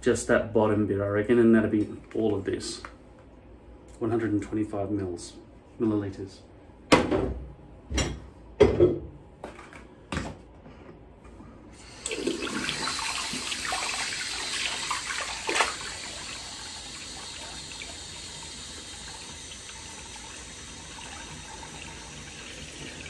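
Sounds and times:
tap water running into basin: 11.8 - 23.0
water splashing: 12.1 - 16.3.

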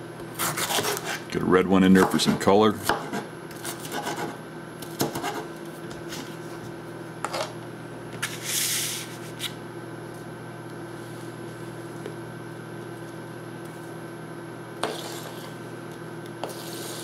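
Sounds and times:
steady hum: 0.0 - 17.0
knife chopping on plastic board: 0.3 - 1.2, 2.0 - 5.4
knife scraping board: 0.3 - 1.3, 2.0 - 5.5, 7.2 - 7.6, 14.8 - 15.6, 16.4 - 17.0.

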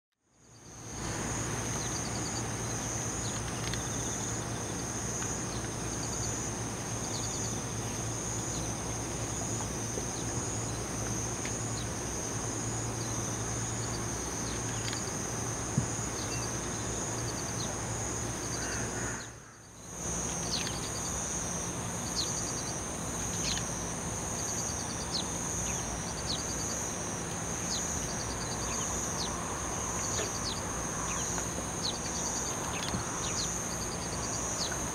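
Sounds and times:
insects trilling: 0.4 - 34.9.

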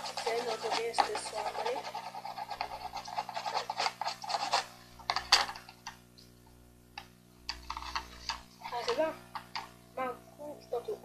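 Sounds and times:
shading strokes on paper: 0.0 - 4.8.

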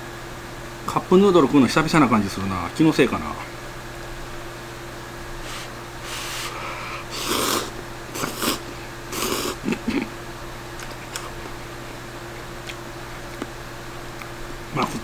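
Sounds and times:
man slurping noodles: 5.4 - 9.9.

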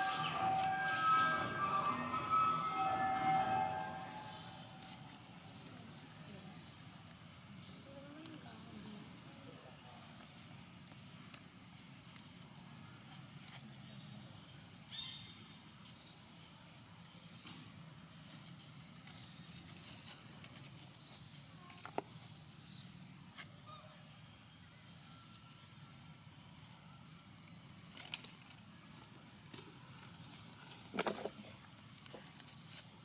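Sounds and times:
high rising chirp: 0.0 - 5.7.

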